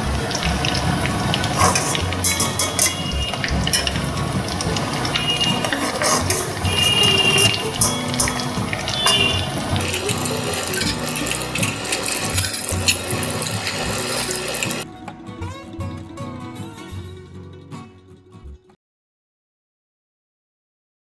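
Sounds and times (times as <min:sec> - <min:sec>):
food deep-frying in oil: 0:00.0 - 0:14.9
guitar music: 0:00.0 - 0:18.8.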